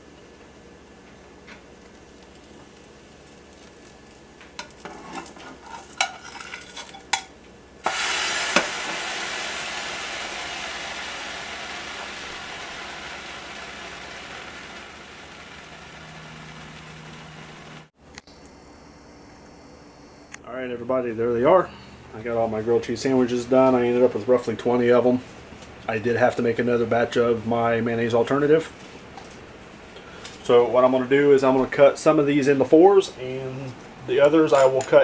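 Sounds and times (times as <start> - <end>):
sandwich sizzling in a pan: 1.7 - 7.0, 7.8 - 17.9
spatula scraping a pan: 4.7 - 7.0.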